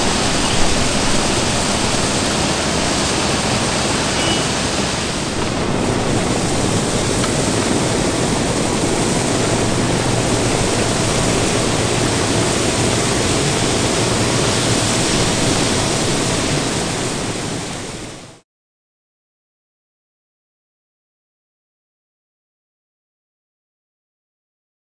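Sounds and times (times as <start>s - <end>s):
ballast cleaning machine rushing: 0.0s - 18.4s.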